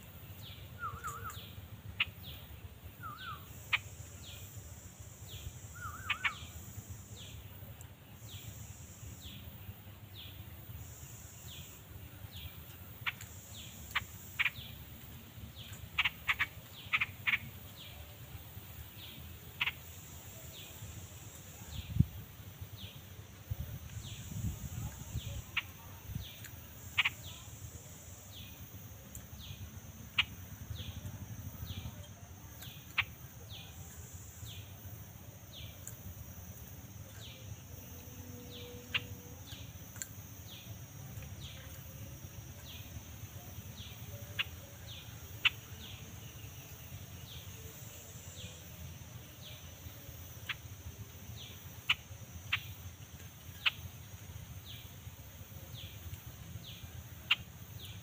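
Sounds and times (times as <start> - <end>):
high insect drone: 0.0 - 58.0
sharp clicks: 39.5 - 40.2.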